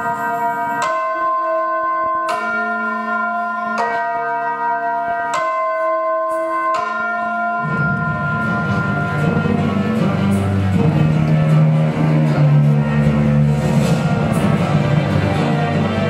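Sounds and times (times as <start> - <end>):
church bells tolling: 0.0 - 16.0
low music with bass and strings: 7.7 - 16.0.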